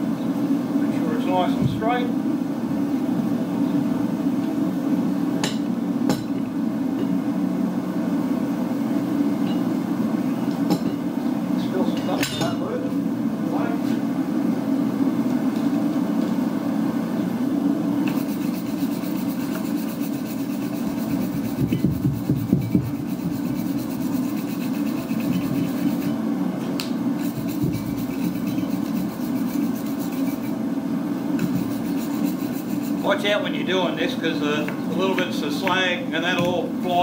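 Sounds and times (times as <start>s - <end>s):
wire brush scrubbing metal: 18.1s - 26.2s, 27.2s - 30.6s, 31.4s - 33.4s.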